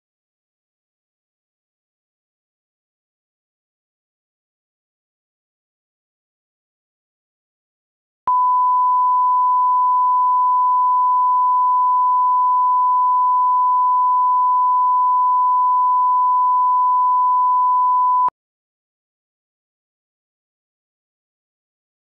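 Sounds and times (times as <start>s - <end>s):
steady reference tone beep: 8.3s - 18.3s.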